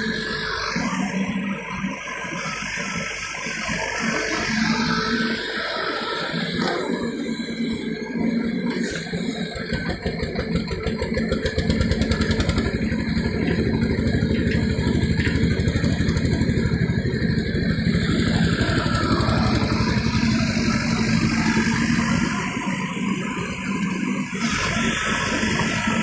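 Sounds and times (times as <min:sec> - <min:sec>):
excavator diesel engine running: 0:00.0 - 0:26.0.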